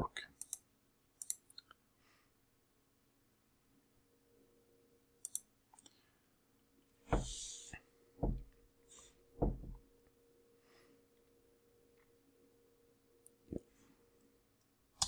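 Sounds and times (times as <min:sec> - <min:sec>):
faint steady hum: 0:00.0 - 0:15.0
sharp mouse clicks: 0:00.4 - 0:01.6, 0:05.2 - 0:05.9
dull thumps on desk: 0:08.2 - 0:08.5, 0:09.4 - 0:09.8.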